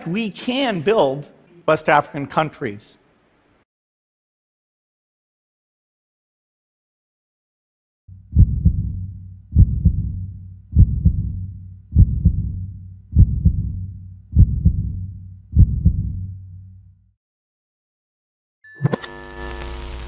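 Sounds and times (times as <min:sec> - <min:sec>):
deep heavy thumping beat: 0:08.1 - 0:16.4.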